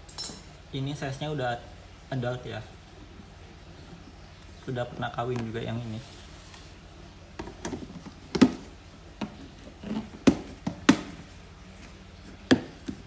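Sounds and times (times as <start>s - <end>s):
plastic tub taps and knocks: 7.4s - 9.5s, 10.2s - 11.2s, 12.5s - 13.0s.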